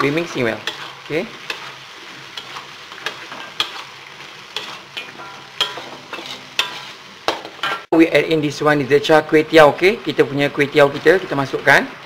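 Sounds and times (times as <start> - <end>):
metal spatula scraping a wok: 0.0 - 7.9
prawns sizzling in a wok: 0.0 - 12.0.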